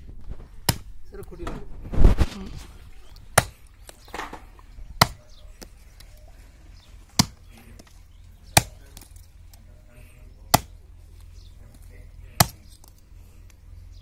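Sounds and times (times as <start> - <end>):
hatchet chopping wooden sticks: 0.6 - 0.9, 3.2 - 4.4, 5.0 - 6.1, 7.1 - 7.9, 8.5 - 9.2, 10.5 - 10.8, 12.4 - 13.0.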